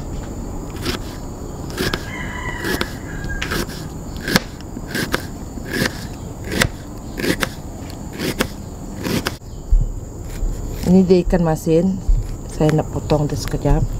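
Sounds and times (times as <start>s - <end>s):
knife slicing onion: 0.7s - 9.4s.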